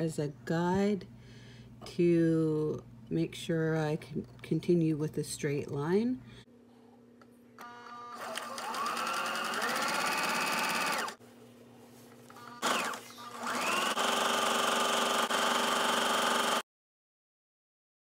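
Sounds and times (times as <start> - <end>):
sewing machine motor running: 8.1 - 11.2, 12.4 - 16.6.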